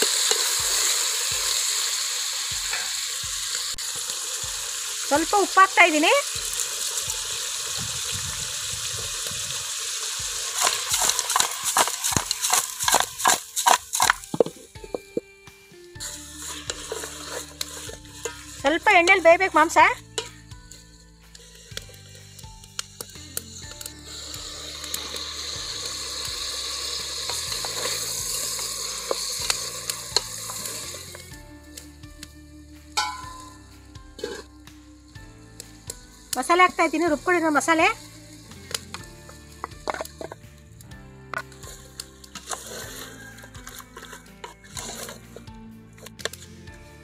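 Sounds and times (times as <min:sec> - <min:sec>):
chicken sizzling in pot: 0:00.0 - 0:47.0
spatula stirring meat: 0:09.9 - 0:15.0, 0:16.0 - 0:31.4, 0:33.8 - 0:40.4, 0:41.4 - 0:46.8
food knocking and scraping metal pot: 0:10.2 - 0:15.2, 0:16.0 - 0:31.3, 0:33.0 - 0:34.6, 0:36.4 - 0:40.4, 0:41.3 - 0:46.4.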